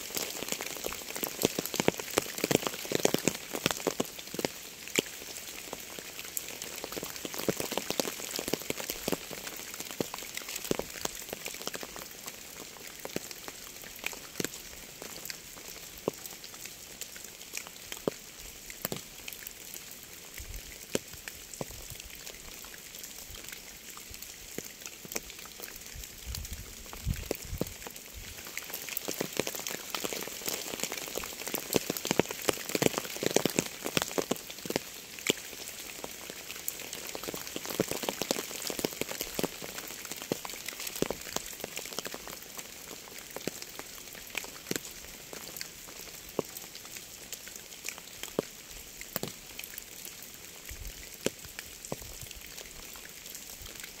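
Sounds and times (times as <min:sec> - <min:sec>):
rain hiss: 0:00.0 - 0:54.0
raindrops ticking close by: 0:00.0 - 0:54.0.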